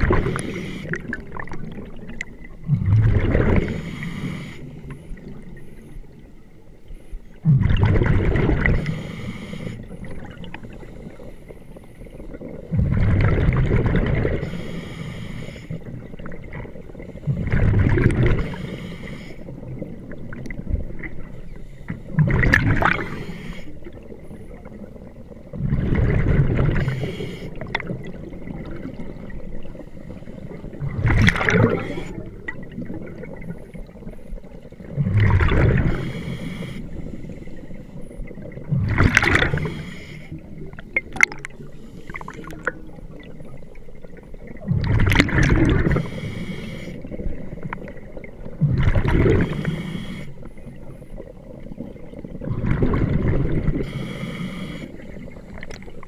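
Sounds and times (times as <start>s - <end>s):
gurgling exhaled bubbles: 0.0s - 4.4s, 7.4s - 11.3s, 11.9s - 14.8s, 15.7s - 18.8s, 19.4s - 56.0s
breath hiss through regulator: 0.2s - 1.2s, 3.6s - 6.0s, 8.7s - 10.1s, 14.4s - 15.9s, 18.3s - 19.5s, 23.0s - 23.9s, 26.8s - 27.7s, 31.6s - 32.3s, 35.8s - 37.6s, 39.3s - 40.5s, 41.6s - 42.8s, 45.8s - 47.3s, 49.3s - 51.0s, 53.7s - 55.5s.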